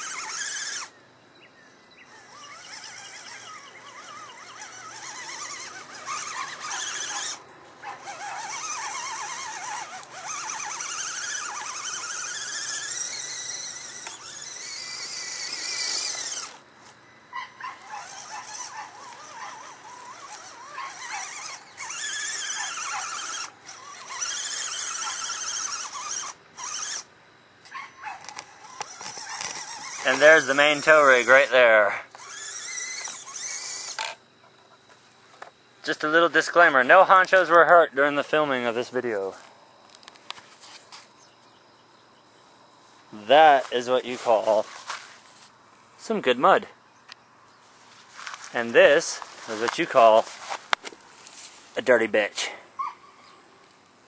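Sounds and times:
electric motor whining: 0.0s - 1.0s, 2.0s - 27.1s, 28.2s - 34.2s.

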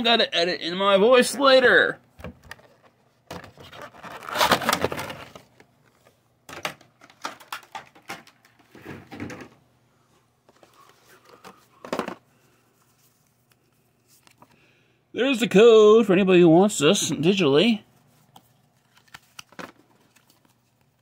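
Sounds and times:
cards rustling and clicking: 2.5s - 8.8s, 10.5s - 14.6s, 18.1s - 21.0s
plastic wrapper crinkling: 3.6s - 5.6s.

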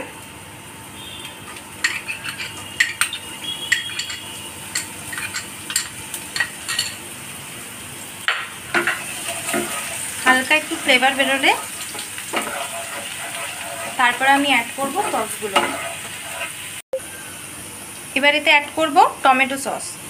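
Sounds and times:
oil sizzling: 0.0s - 19.8s
spoon clinking against bowl: 1.8s - 7.0s.

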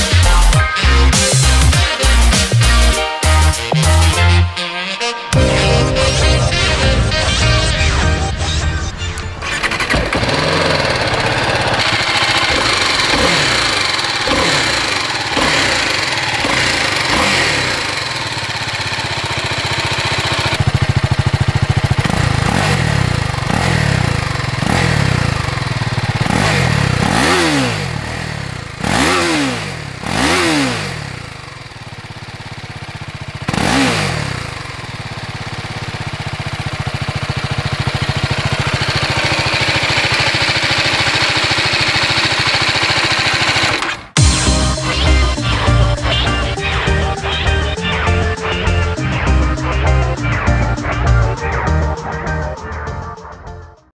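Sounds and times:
motorcycle engine idling and revving: 0.0s - 4.5s, 5.3s - 53.0s.

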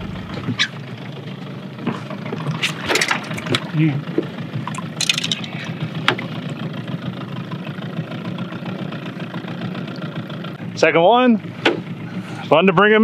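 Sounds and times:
outboard motor idling: 0.0s - 13.0s
water splash: 4.6s - 6.5s.

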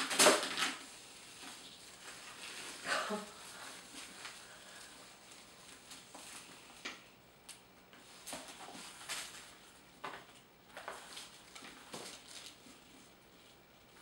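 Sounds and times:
tissue paper rustling: 0.0s - 6.8s, 8.0s - 9.8s, 10.8s - 14.0s.

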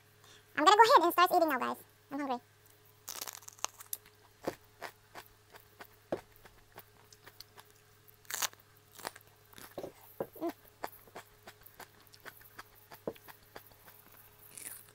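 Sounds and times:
crunching bites of pepper: 3.0s - 14.9s
chewing: 3.1s - 14.9s.

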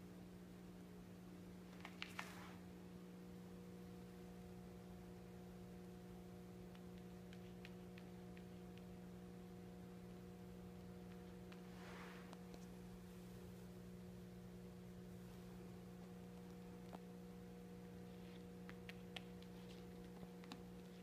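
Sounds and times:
faint electrical hum: 0.0s - 21.0s
soft rustle: 1.8s - 2.7s, 11.2s - 13.7s.

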